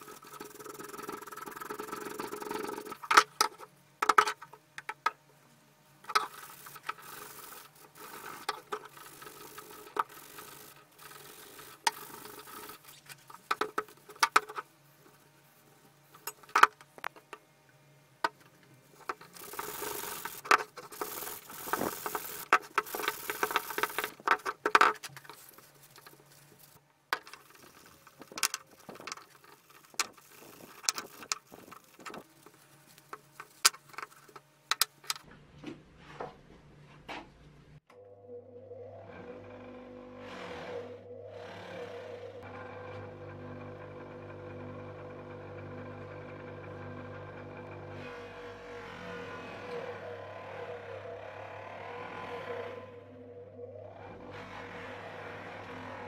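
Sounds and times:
rubbing parts clean: 6.1 - 14.6, 18.9 - 35.2.

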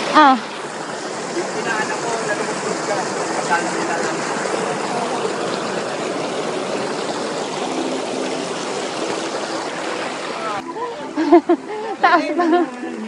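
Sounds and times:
stream rushing over boulders: 0.0 - 13.0.

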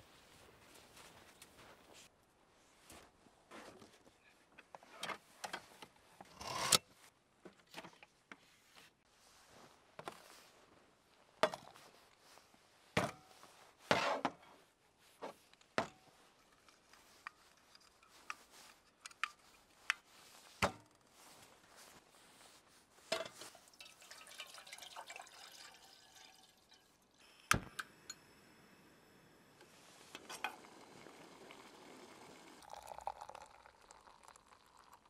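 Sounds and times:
water trickling: 23.5 - 27.2, 30.2 - 35.0.

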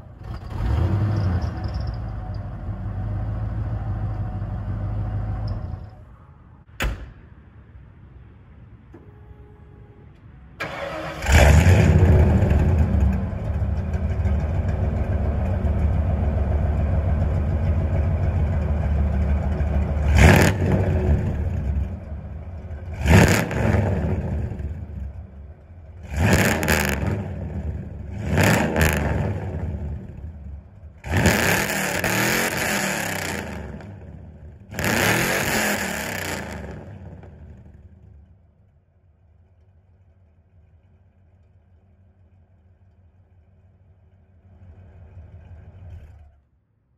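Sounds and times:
engine revving: 0.0 - 5.5, 10.6 - 25.2, 26.0 - 37.8
truck engine starting and idling: 0.0 - 7.7, 8.7 - 46.9.

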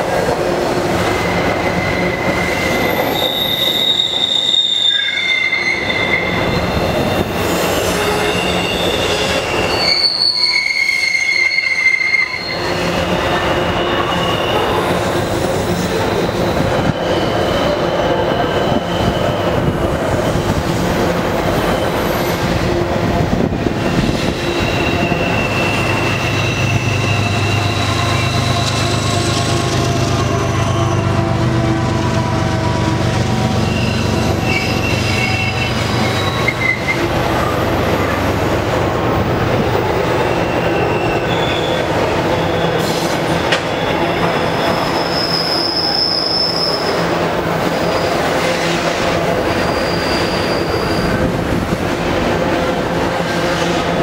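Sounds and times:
freight train cars rumbling: 0.0 - 54.0
high-pitched wheel squeals: 1.0 - 20.6, 21.3 - 22.7, 23.7 - 31.3, 33.4 - 37.5, 40.0 - 47.1, 47.9 - 51.3
diesel locomotive engine drone: 12.5 - 54.0.

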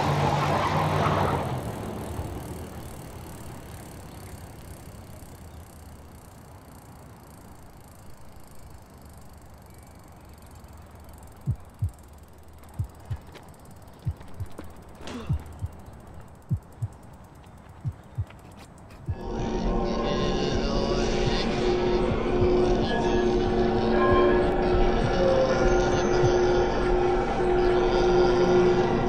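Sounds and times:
faint low hum: 1.9 - 29.0
heartbeat thumps: 11.4 - 12.0, 12.7 - 13.4, 14.0 - 15.8, 16.5 - 17.0, 17.8 - 19.3, 22.1 - 22.9, 24.0 - 24.4.

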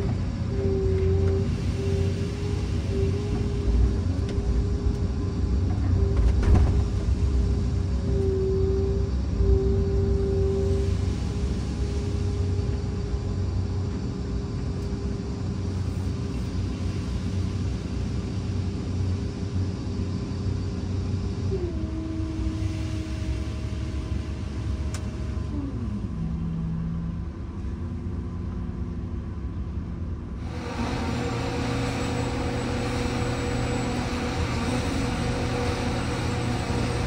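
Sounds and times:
diesel engine and hydraulics whining: 0.0 - 37.0.

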